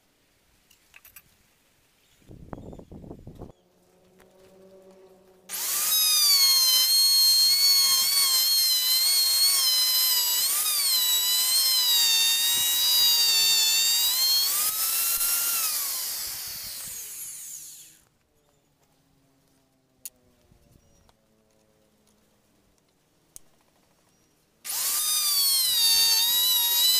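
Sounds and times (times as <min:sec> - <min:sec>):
electric router whining: 0:04.0 - 0:18.0, 0:24.7 - 0:26.9
router spinning down: 0:05.5 - 0:18.0, 0:24.7 - 0:26.9.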